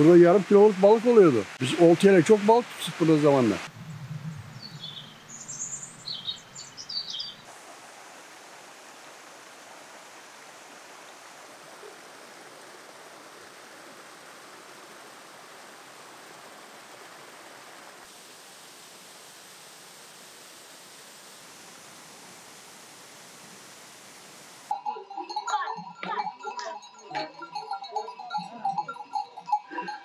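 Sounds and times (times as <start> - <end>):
waterfall rushing: 0.0 - 3.7, 6.9 - 24.8
small birds chirping: 3.9 - 7.5.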